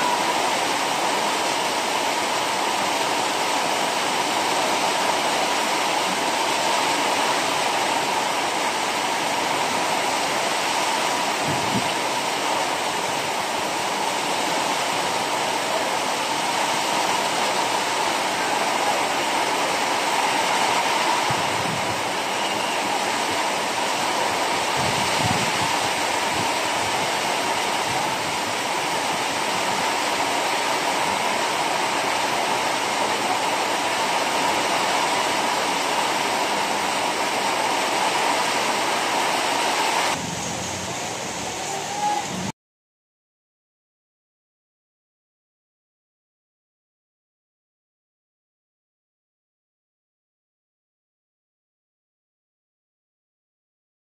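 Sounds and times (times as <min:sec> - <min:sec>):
heavy rain on pavement: 0:00.0 - 0:42.5.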